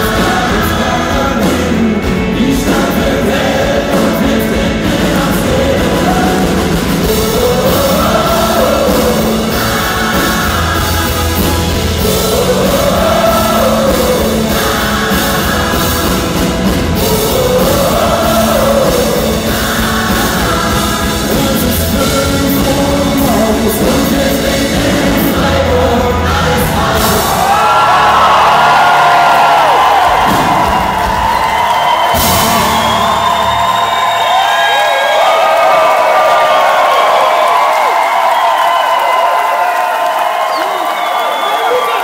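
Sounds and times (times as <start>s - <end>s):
person singing: 0.0s - 30.7s
crowd singing along: 0.0s - 34.7s
electric guitars: 0.0s - 38.9s
drums: 0.0s - 42.0s.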